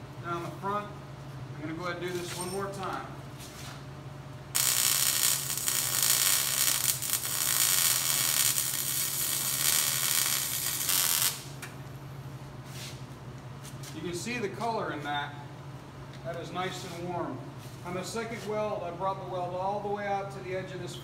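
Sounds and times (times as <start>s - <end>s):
welding arc crackling: 4.5s - 11.7s.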